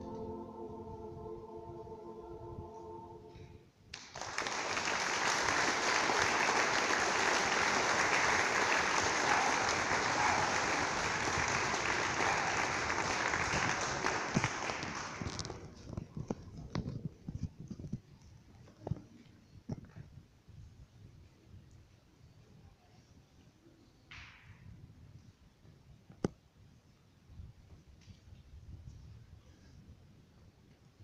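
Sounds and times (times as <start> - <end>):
choir singing chord: 0.0 - 3.6
audience applauding: 3.9 - 15.7.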